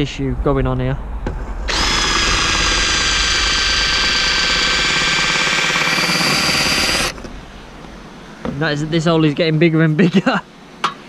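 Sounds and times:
cordless drill whining: 0:01.7 - 0:07.2
drill bit cutting metal panel: 0:01.7 - 0:07.2.

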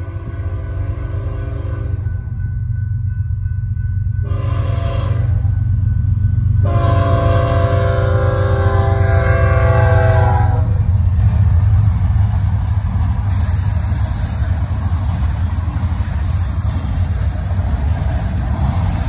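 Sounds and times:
train rumble: 0:00.0 - 0:19.0
locomotive horn blasts: 0:00.1 - 0:02.0, 0:04.2 - 0:05.5, 0:06.6 - 0:10.9
wheel and rail noise: 0:05.2 - 0:19.0.

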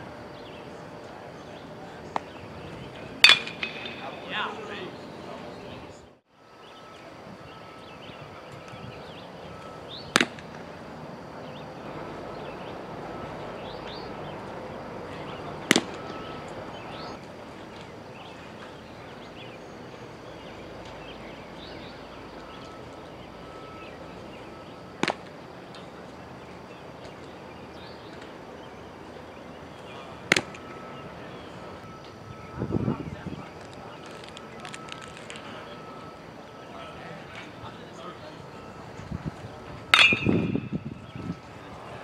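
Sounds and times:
baseball smacking into mitt: 0:10.2 - 0:10.4, 0:15.7 - 0:16.0, 0:25.0 - 0:25.3, 0:30.3 - 0:30.6.

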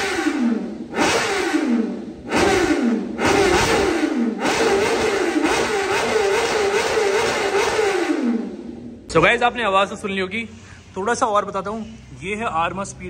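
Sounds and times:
motorcycle engine revving: 0:00.0 - 0:09.7.

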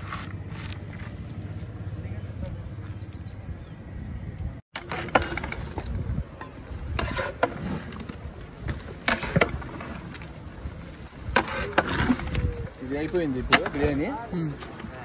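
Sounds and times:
metal paddle scraping cooking pot: 0:06.8 - 0:10.3, 0:11.3 - 0:12.5.

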